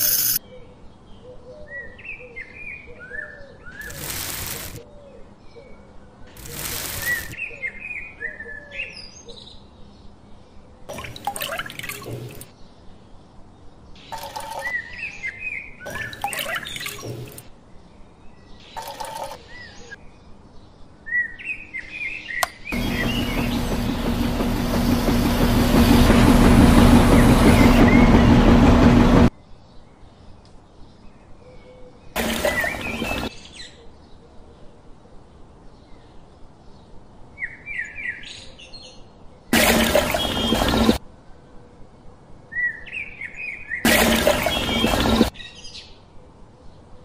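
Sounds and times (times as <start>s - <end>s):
small electric motor humming: 0.0s - 0.4s, 3.8s - 4.8s, 6.4s - 7.4s, 22.8s - 29.3s
birds chirping: 6.3s - 8.0s, 14.0s - 17.4s, 22.0s - 29.3s, 32.2s - 33.7s, 39.6s - 41.0s, 43.9s - 45.5s.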